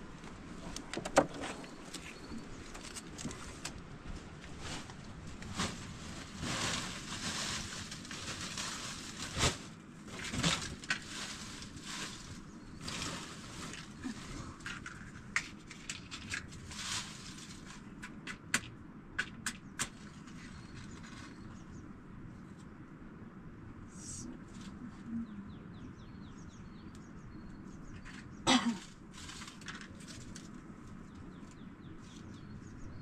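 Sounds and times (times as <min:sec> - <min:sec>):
twigs rustling and crackling: 0:00.0 - 0:18.7, 0:27.9 - 0:32.6.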